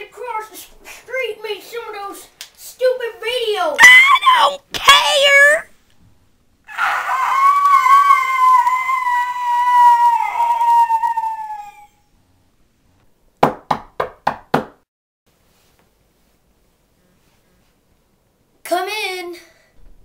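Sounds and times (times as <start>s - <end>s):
boy screaming: 3.7s - 5.7s, 6.7s - 12.0s
knocks on a door: 13.4s - 14.8s.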